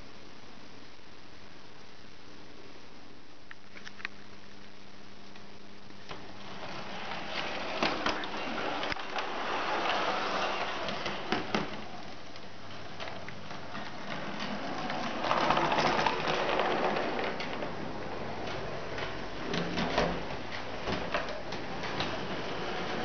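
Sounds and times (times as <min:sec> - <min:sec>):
model tram wheels rattling on rails: 0:13.7 - 0:17.7.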